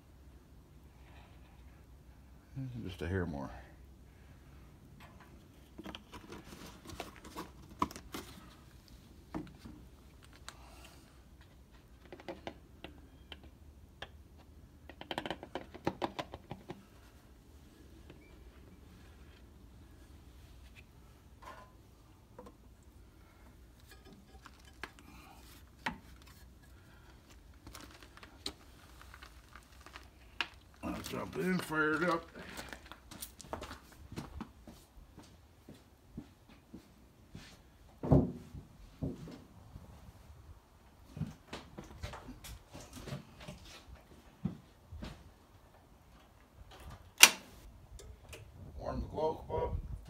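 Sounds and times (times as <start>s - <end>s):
hands handling plastic funnel: 5.2s - 10.6s, 23.8s - 33.3s.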